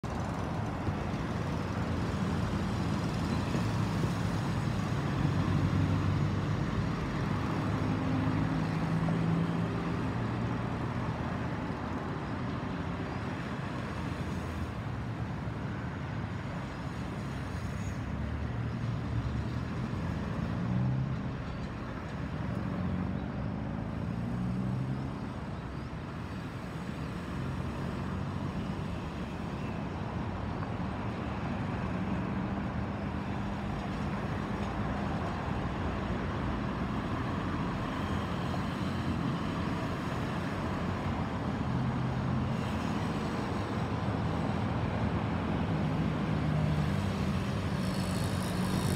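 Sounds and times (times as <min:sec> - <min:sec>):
cars and motorbikes passing: 0:00.0 - 0:48.9.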